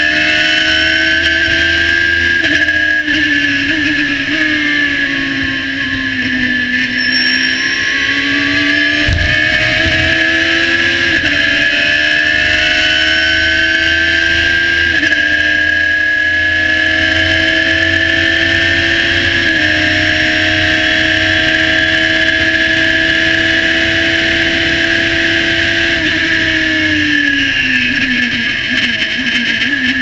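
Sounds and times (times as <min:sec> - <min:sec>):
race car engine at full throttle: 0:00.0 - 0:30.0.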